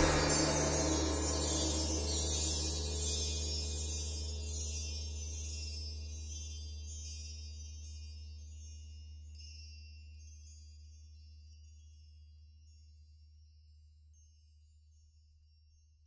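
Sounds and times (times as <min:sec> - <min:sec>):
steady low drone: 0:00.0 - 0:05.0
tinkling chime-like notes: 0:00.0 - 0:16.0.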